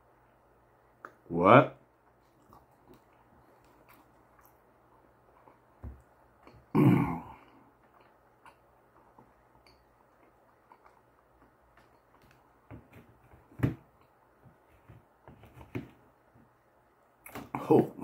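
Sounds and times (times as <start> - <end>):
quiet chewing: 2.0 - 6.8, 7.4 - 12.7.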